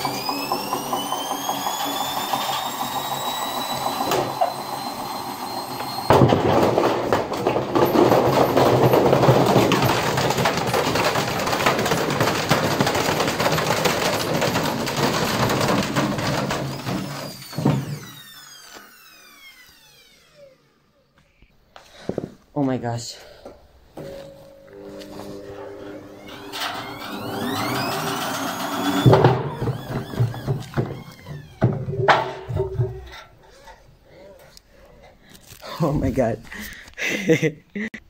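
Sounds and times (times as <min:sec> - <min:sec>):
washing machine motor whine: 0:00.0 - 0:21.2, 0:23.9 - 0:33.6
drum banging and clattering: 0:06.1 - 0:18.0, 0:26.3 - 0:33.3.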